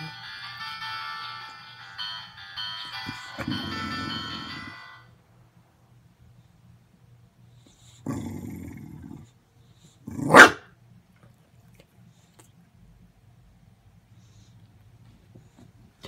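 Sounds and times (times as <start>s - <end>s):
dog growling low: 3.4s - 4.7s, 8.0s - 9.4s
dog barking: 10.2s - 10.7s.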